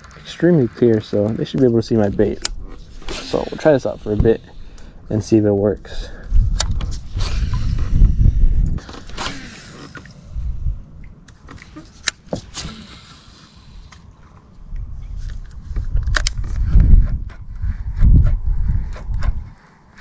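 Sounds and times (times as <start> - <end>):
wind buffeting microphone: 0.7 - 9.4, 10.3 - 11.2, 14.6 - 20.0.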